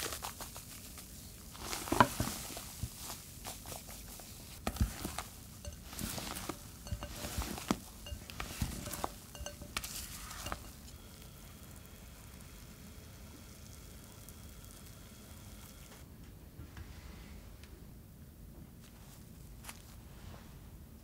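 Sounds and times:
whisk clicking against glass bowl: 5.6s - 10.9s.

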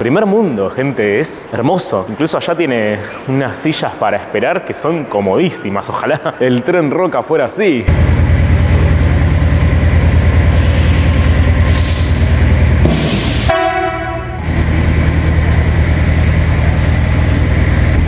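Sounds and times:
diesel railcar engine throbbing: 7.9s - 18.0s
short buzzing tone: 11.8s - 14.6s.

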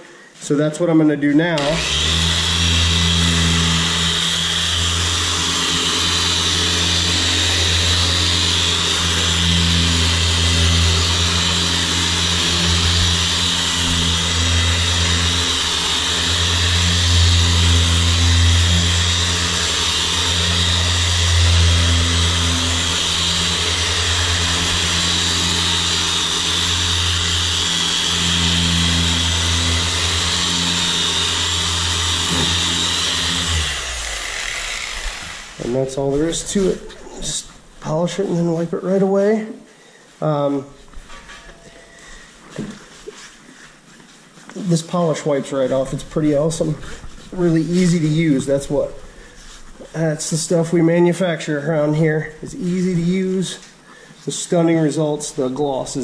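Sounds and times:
polisher motor hum: 1.6s - 37.4s.

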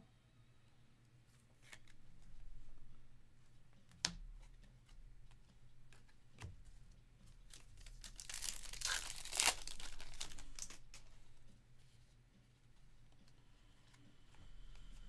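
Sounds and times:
foil wrapper tearing and crinkling: 7.5s - 11.0s.

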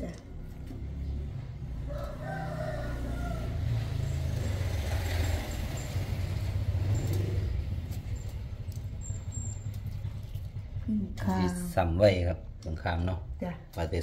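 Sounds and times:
motor vehicle passing: 0.0s - 14.0s
rooster crowing: 1.8s - 4.2s.

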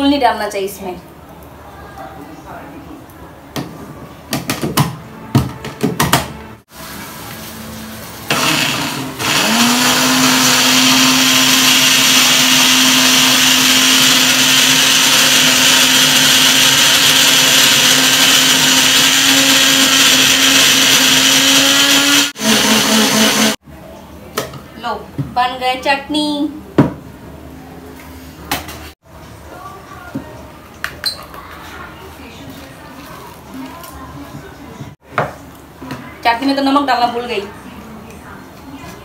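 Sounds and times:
blender grinding: 8.2s - 23.6s.

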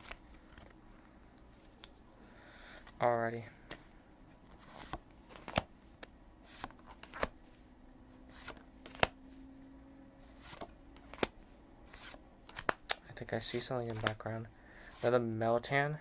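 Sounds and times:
cards flipped by hand: 0.0s - 2.0s, 4.5s - 7.4s, 8.1s - 9.2s, 10.2s - 14.2s.

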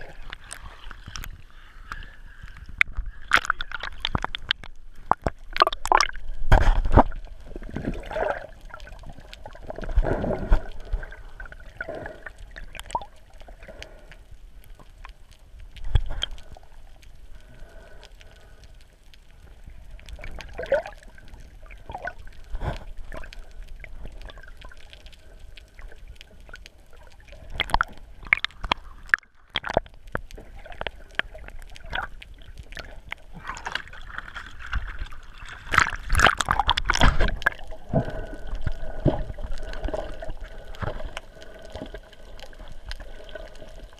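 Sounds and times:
underwater sloshing and gurgling: 0.0s - 43.9s.

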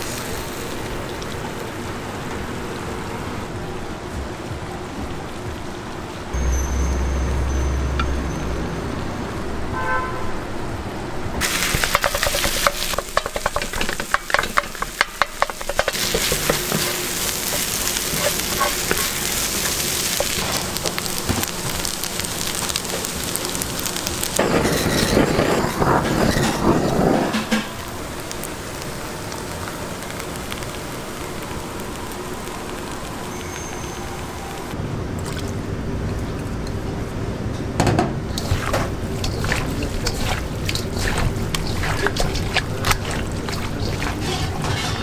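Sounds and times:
rice sizzling on hot plate: 11.4s - 34.8s, 38.4s - 45.0s
spatulas scraping and tapping metal: 11.7s - 19.1s, 24.4s - 27.8s, 38.4s - 45.0s.

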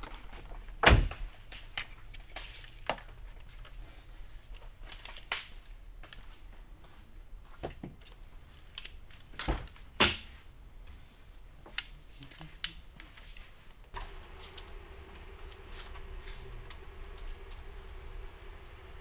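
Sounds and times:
low steady hum: 14.0s - 19.0s.

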